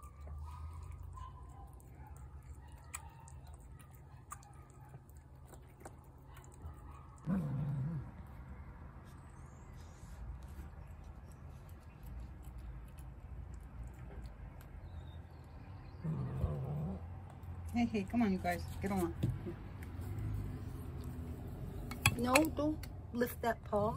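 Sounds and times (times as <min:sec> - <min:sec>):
cat growling: 0:07.2 - 0:08.3, 0:16.0 - 0:17.2.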